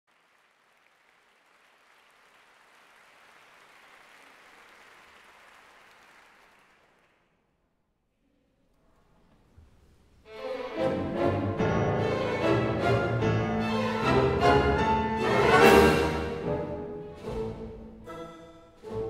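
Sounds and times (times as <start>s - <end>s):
faint audience applause: 0.0s - 7.5s.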